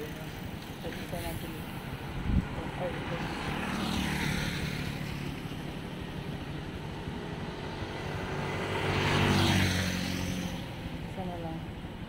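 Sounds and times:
motorcycle passing by: 0:02.7 - 0:11.1.

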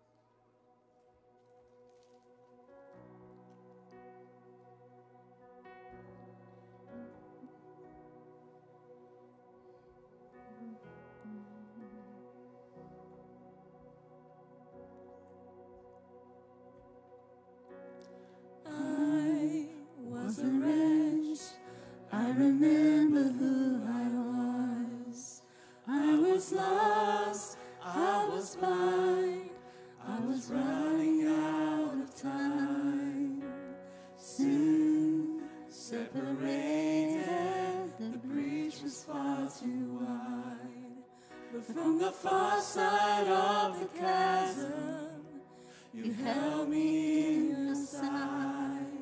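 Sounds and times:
group singing worship song: 0:18.6 - 0:49.0.

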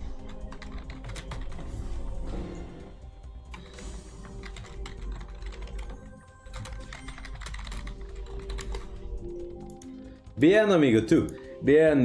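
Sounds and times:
slot game music: 0:00.0 - 0:12.0
keyboard keys clicking: 0:00.1 - 0:01.6, 0:03.5 - 0:10.0.

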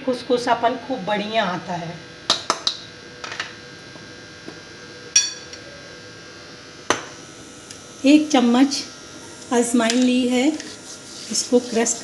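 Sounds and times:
spoon clinking against glass bowl: 0:05.2 - 0:05.5.

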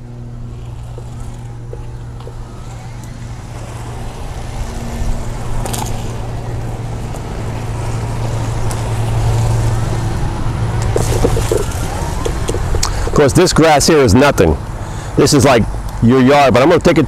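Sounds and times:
power chair motors humming: 0:00.0 - 0:13.2.

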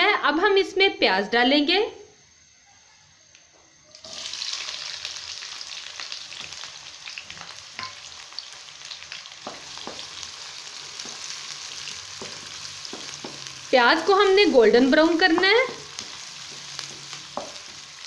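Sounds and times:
onions sizzling in hot oil: 0:03.9 - 0:18.0
wooden spatula stirring: 0:10.9 - 0:13.7, 0:14.9 - 0:18.0.

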